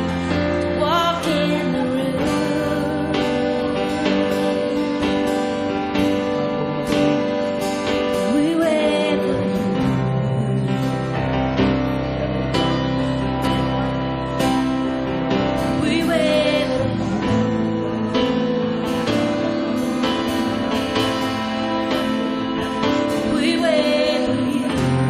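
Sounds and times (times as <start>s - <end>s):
person singing: 0.0s - 6.2s, 7.8s - 11.3s, 15.6s - 18.4s, 21.9s - 25.0s
sustained keyboard chords: 0.0s - 25.0s.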